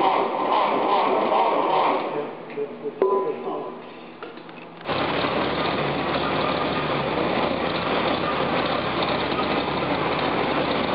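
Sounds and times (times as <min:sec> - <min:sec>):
car engine idling: 0:04.8 - 0:10.9.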